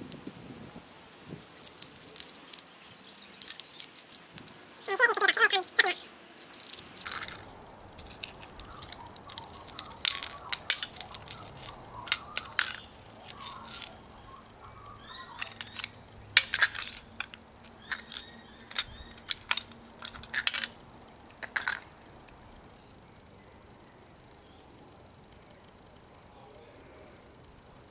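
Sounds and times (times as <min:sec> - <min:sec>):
plastic gears clicking and rattling: 0:00.0 - 0:14.2, 0:15.0 - 0:21.9.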